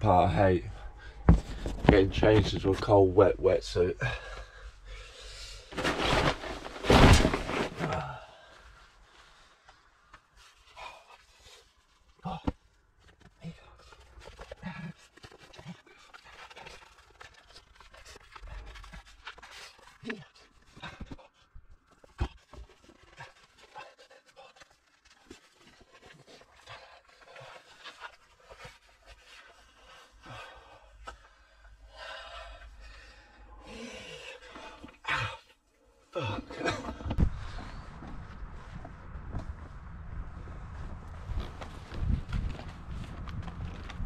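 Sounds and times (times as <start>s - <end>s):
wetsuit rubbing and rustling: 5.6s - 8.1s, 40.6s - 44.0s.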